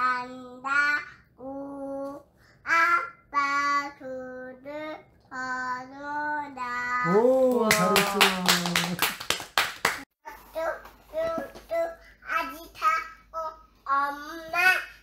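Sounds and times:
hand clapping: 0:07.1 - 0:10.1.

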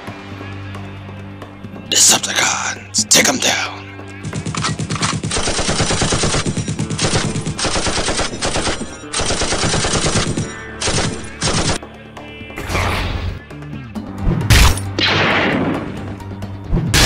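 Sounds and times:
machine-gun fire: 0:04.2 - 0:11.8.

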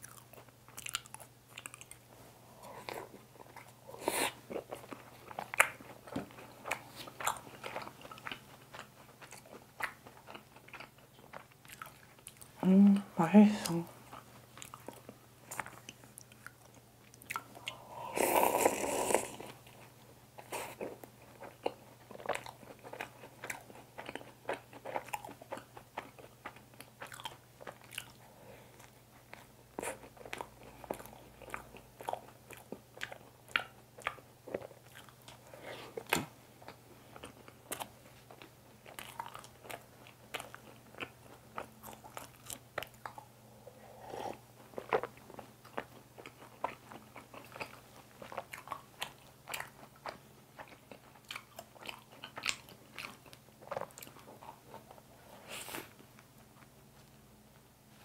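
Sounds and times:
biting and chewing crunchy bun: 0:00.0 - 0:02.1, 0:18.5 - 0:43.4, 0:44.0 - 0:55.1.

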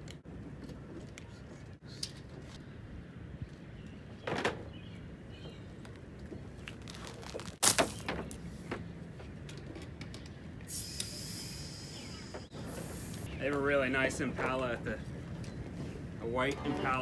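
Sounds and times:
steady high hiss: 0:10.6 - 0:13.5.

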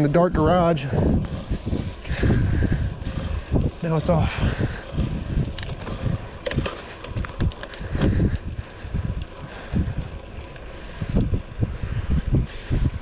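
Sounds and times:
wind buffeting microphone: 0:00.0 - 0:13.0
light ticks: 0:06.6 - 0:09.4.

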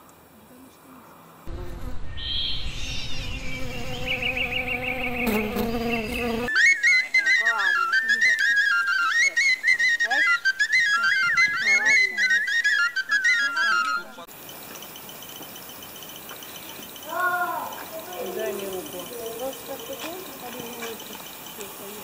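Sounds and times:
high pulsing trill: 0:01.5 - 0:06.4
high piping wind instrument melody: 0:06.2 - 0:14.2.

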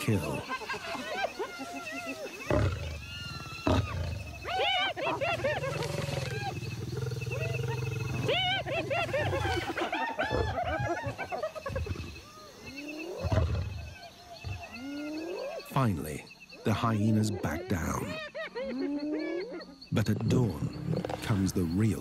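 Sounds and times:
hyenas giggling and yelping: 0:00.0 - 0:15.8, 0:16.6 - 0:21.3
lion growling: 0:02.4 - 0:12.2, 0:20.0 - 0:21.8.

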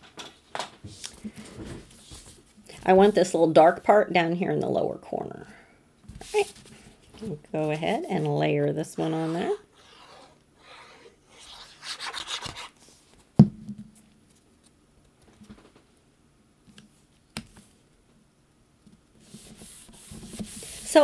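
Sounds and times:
paper being handled and rubbed: 0:06.2 - 0:06.9, 0:09.0 - 0:13.1, 0:19.2 - 0:21.0.

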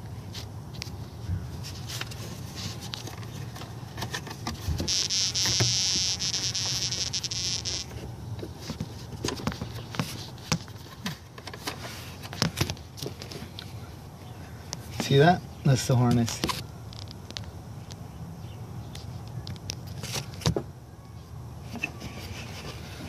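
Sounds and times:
loud high buzz: 0:04.9 - 0:08.0.

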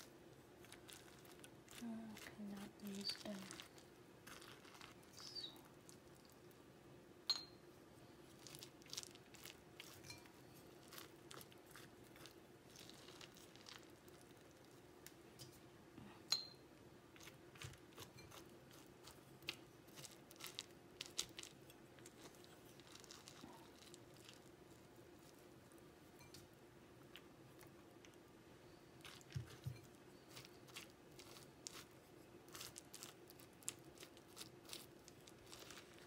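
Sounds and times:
spoon clinks: 0:07.3 - 0:07.6, 0:16.3 - 0:16.6.

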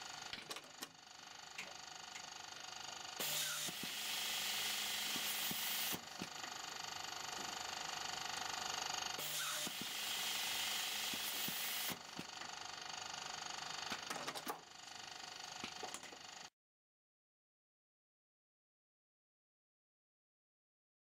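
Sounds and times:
labelling machine whirring: 0:03.2 - 0:12.3
sharp machine clicks: 0:09.2 - 0:12.4.

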